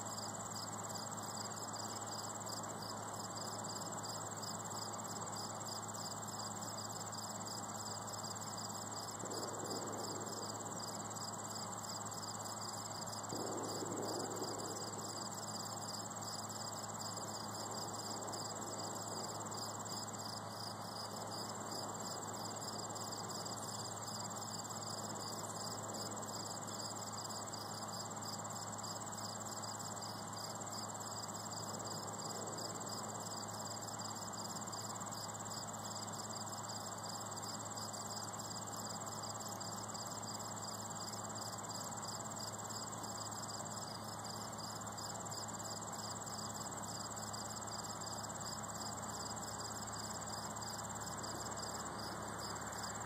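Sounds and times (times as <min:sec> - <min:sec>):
high continuous insect trill: 0:00.0 - 0:53.0
rapidly pulsing cricket chirp: 0:00.0 - 0:53.0.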